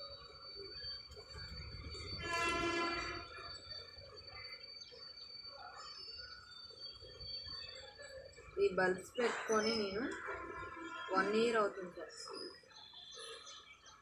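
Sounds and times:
faint steady high tone: 0.0 - 14.0
horn: 2.2 - 3.3.

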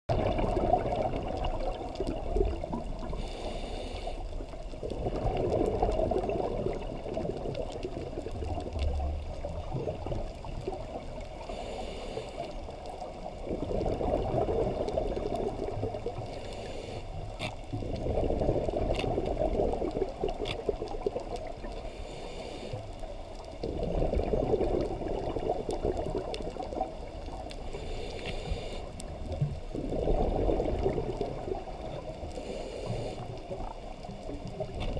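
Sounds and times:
exhaled bubbles gurgling: 0.1 - 34.9
faint clicks: 1.2 - 23.8, 24.6 - 30.0, 30.7 - 34.9
regulator inhale hiss: 3.0 - 4.6, 11.4 - 12.8, 16.2 - 17.5, 21.7 - 23.2, 27.5 - 29.1, 32.2 - 33.7.

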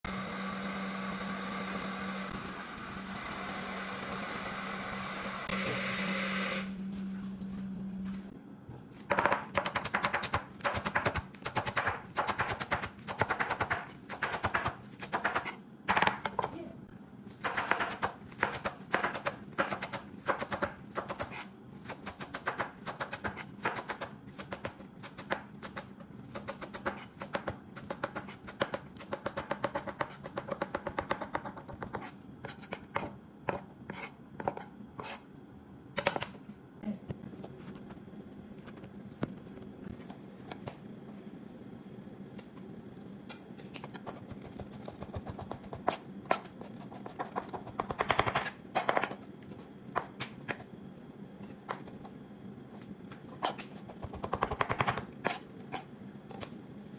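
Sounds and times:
knife chopping on cutting board: 9.1 - 16.5, 17.4 - 35.2.

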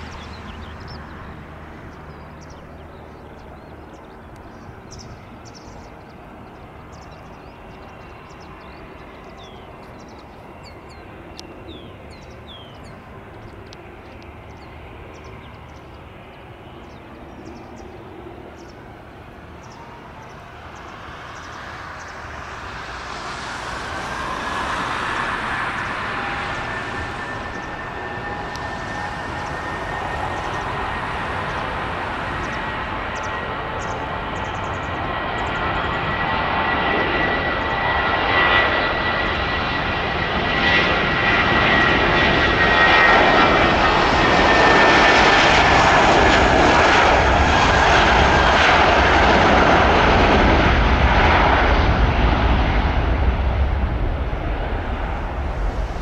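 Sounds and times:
small birds chirping: 0.0 - 23.4, 24.1 - 36.5
jet engines whining: 0.0 - 56.0.

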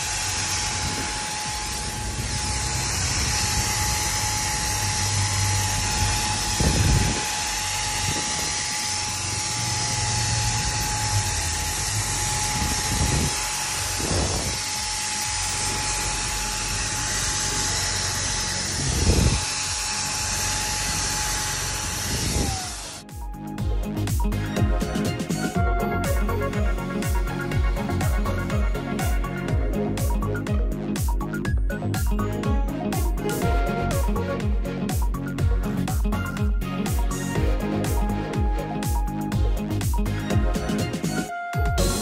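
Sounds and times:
hiss of spray: 0.0 - 15.0
paint sprayer whine: 0.0 - 42.0.

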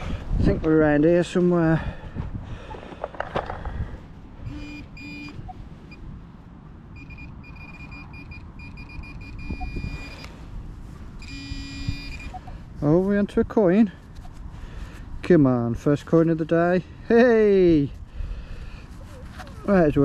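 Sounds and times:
wind on microphone: 0.0 - 0.7, 1.8 - 5.6, 9.3 - 10.2
low detector tone: 4.4 - 6.1, 6.9 - 10.4, 11.2 - 12.6
metal detector beeping: 4.4 - 6.1, 6.9 - 10.4, 11.2 - 12.6.

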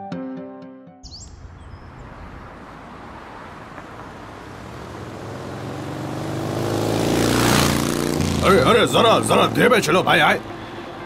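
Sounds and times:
high chirp: 1.0 - 1.9
road vehicle approaching: 1.3 - 11.0.

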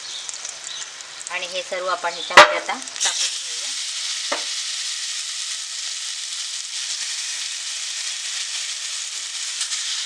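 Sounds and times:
fish sizzling in hot oil: 0.0 - 10.0.

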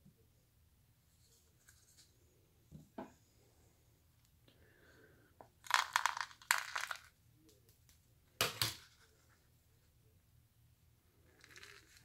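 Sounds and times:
powder shaken into plastic cup: 5.6 - 7.1, 11.4 - 12.0.

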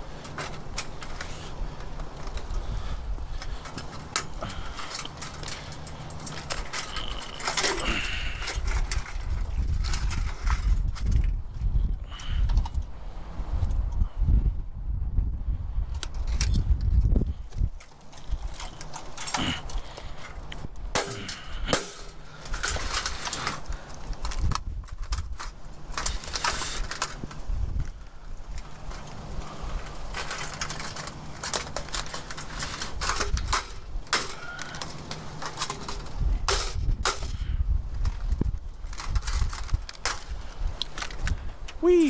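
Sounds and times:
scrap metal rattling and clanking: 0.0 - 11.4, 17.8 - 27.9, 28.5 - 41.3.

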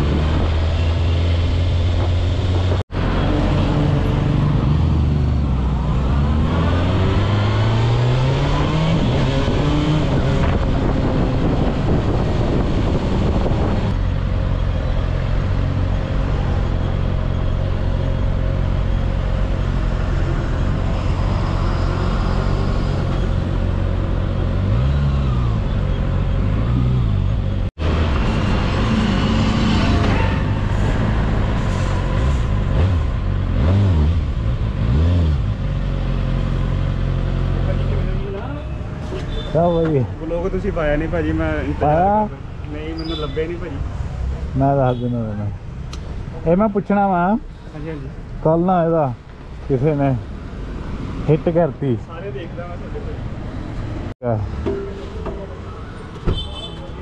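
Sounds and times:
motorcycle engine revving: 32.1 - 38.0.

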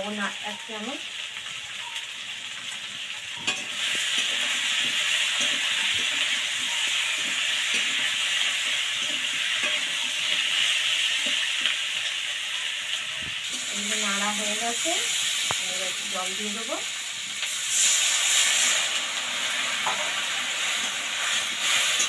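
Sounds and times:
potatoes sizzling in oil: 0.0 - 22.0
metal spatula scraping a wok: 3.4 - 12.2, 17.4 - 22.0.

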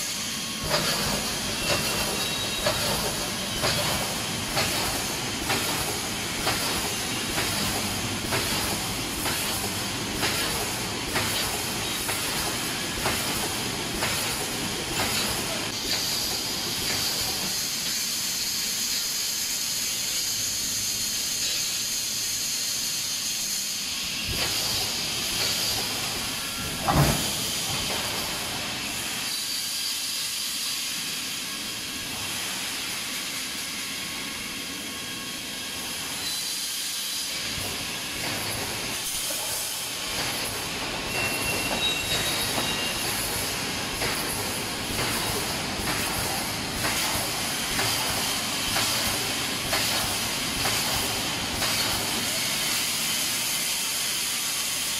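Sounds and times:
pneumatic air cylinders hissing: 0.0 - 54.9
machine mechanical knocks and clanks: 0.6 - 17.5, 24.3 - 28.6, 37.5 - 52.3.

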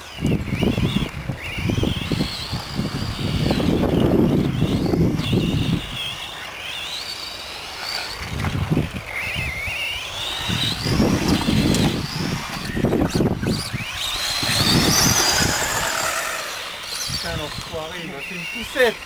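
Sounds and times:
electric motors whining: 0.0 - 19.0.

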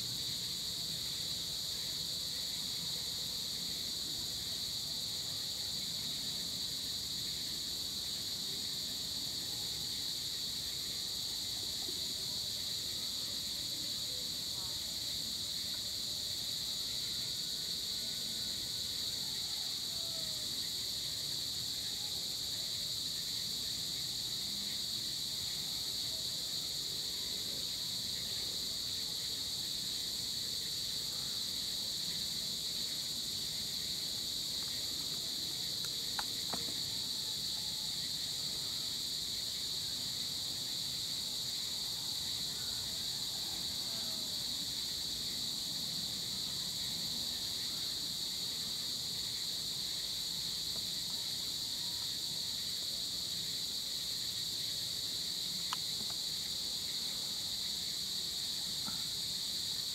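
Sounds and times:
faint ticks: 35.8 - 36.8, 55.7 - 56.2.

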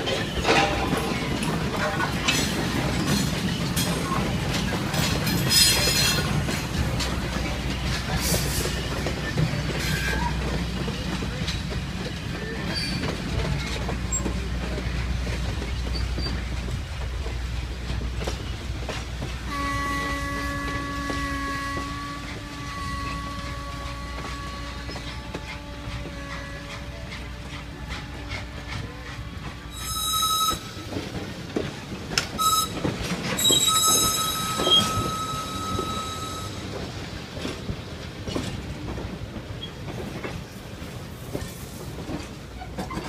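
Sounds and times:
train wheels clicking on rails: 0.0 - 43.0
steam locomotive whistle: 19.5 - 31.0, 32.3 - 36.8
wheel squeals: 29.7 - 30.9, 32.4 - 36.8.

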